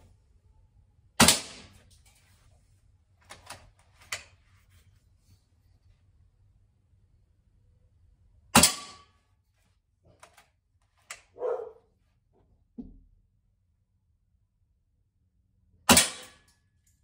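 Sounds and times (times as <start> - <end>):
air rifle shot: 1.2 - 1.7, 8.6 - 9.1.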